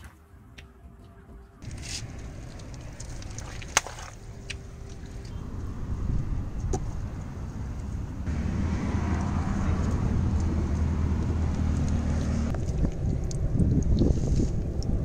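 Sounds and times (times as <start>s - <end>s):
tyres on wet pavement: 1.6s - 15.0s
car engine running: 4.7s - 13.6s.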